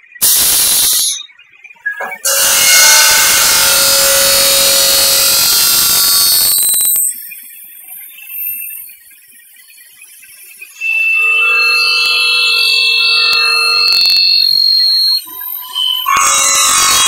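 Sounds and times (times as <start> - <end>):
faint high ring: 2.0 - 7.2, 10.8 - 15.2, 15.8 - 17.0
circular saw cutting aluminium: 2.0 - 7.4, 10.8 - 17.0.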